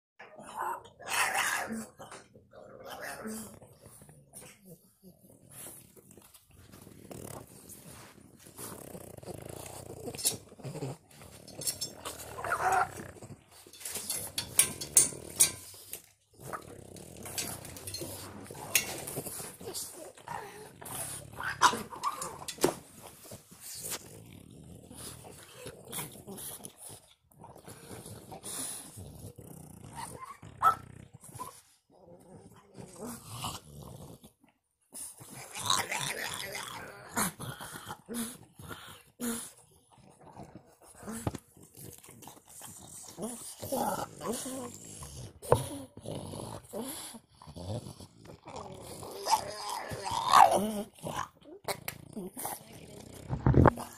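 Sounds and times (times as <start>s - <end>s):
dog grumbling and whining: 0.2s - 5.9s, 6.6s - 15.8s, 16.4s - 26.8s, 27.6s - 34.3s, 35.2s - 53.9s
dog whining and grunting: 8.7s - 15.6s, 28.3s - 31.7s.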